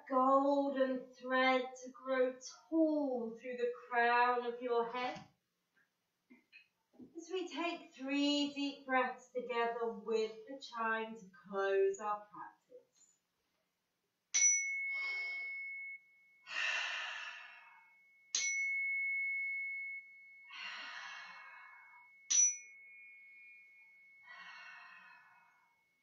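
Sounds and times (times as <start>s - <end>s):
handheld chime ringing: 14.4s - 16.5s, 18.0s - 20.5s, 22.0s - 24.7s.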